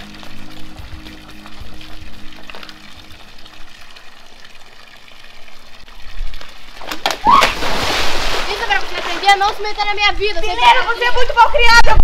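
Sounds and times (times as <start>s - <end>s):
water pouring into pool: 0.0s - 9.9s
net sloshing through water: 6.8s - 9.2s.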